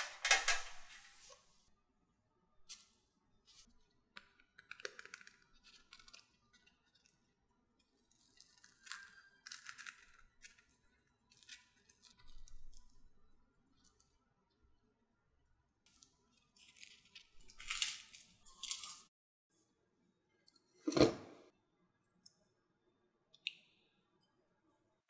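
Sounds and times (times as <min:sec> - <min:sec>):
pastry shell crackling: 0:08.1 - 0:12.9, 0:15.9 - 0:19.1.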